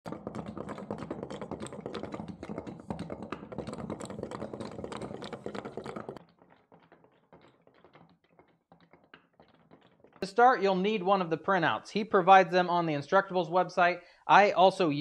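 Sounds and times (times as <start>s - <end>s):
small hard objects clicking: 0.0s - 10.4s.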